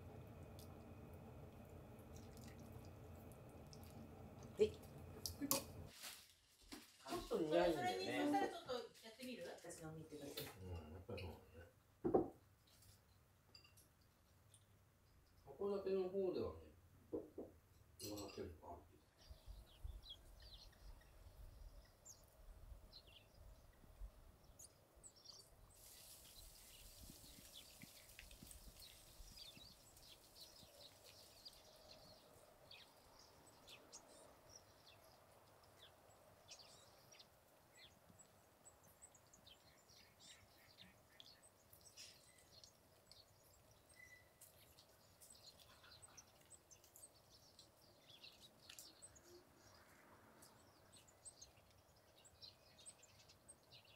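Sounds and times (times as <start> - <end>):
low rumble of wind: 0.0 - 5.9, 19.2 - 25.7
small birds chirping: 0.0 - 6.0, 7.0 - 53.9.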